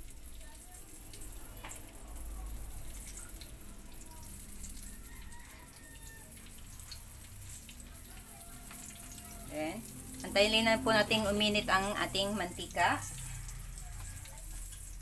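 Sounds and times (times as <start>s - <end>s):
oil pouring trickle: 0.0s - 15.0s.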